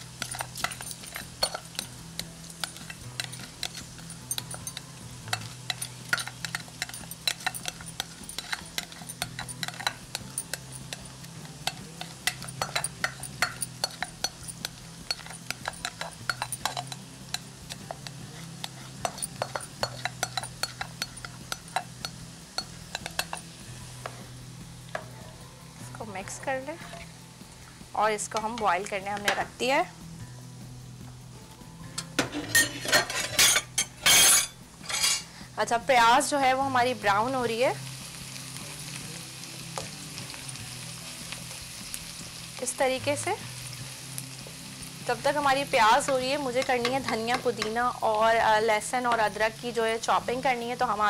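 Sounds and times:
metal spoon clinking on glass: 0.2 - 23.5, 32.0 - 35.3.

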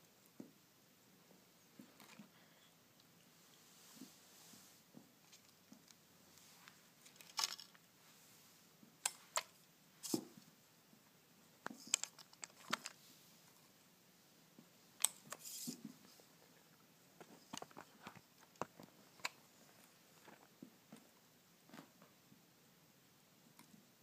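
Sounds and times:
plastic toy clicks and rustles: 7.0 - 7.8, 9.0 - 10.2, 11.8 - 13.0.

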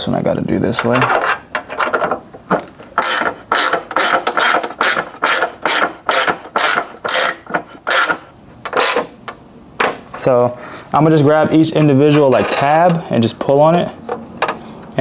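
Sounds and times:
socket ratchet clicking: 2.5 - 9.4.

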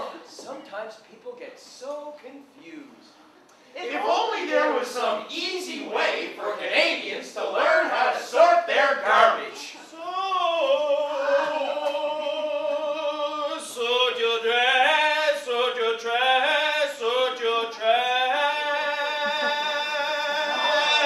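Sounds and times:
person singing loudly: 9.9 - 13.6, 17.8 - 21.0.

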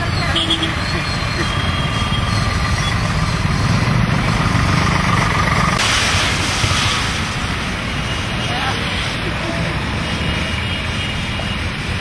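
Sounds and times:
motorcycle engines running: 0.0 - 5.8
water spraying from wheels: 1.9 - 10.0.

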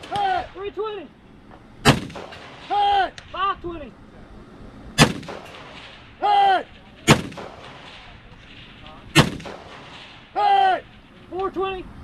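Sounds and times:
single gunshots: 1.8 - 2.9, 5.0 - 6.2, 7.0 - 11.0.

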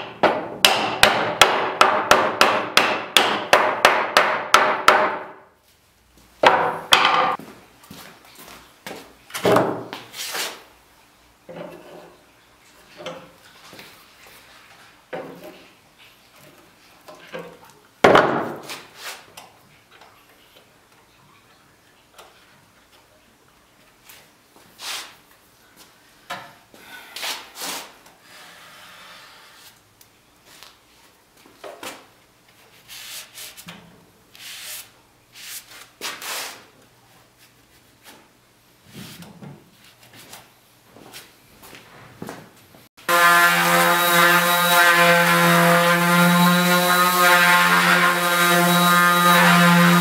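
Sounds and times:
sharp wooden knock: 0.0 - 5.4, 6.4 - 7.4.

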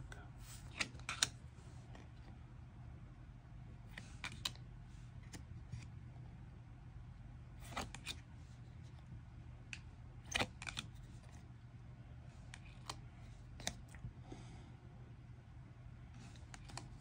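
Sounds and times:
faint low hum: 0.0 - 17.0
cards clicking and tapping: 0.6 - 2.0, 3.9 - 4.6, 7.6 - 8.2, 9.7 - 11.0, 12.5 - 14.0, 16.2 - 17.0.

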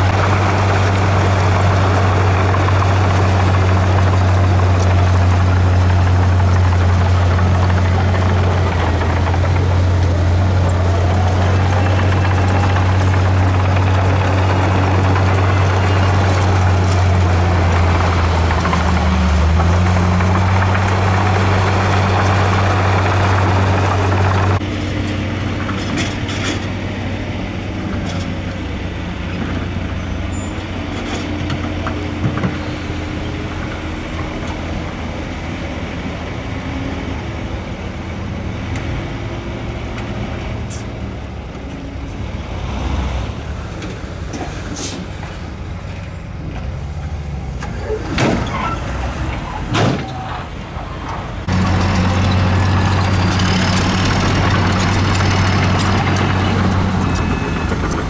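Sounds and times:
heavy machinery engine drone: 0.0 - 58.0
scattered knocks: 0.2 - 24.6.

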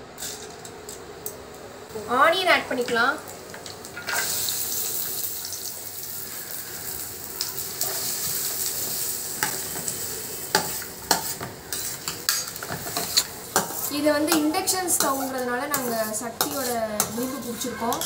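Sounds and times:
onions sizzling in hot oil: 1.9 - 18.0
metal spoon scraping a pan: 10.5 - 18.0.

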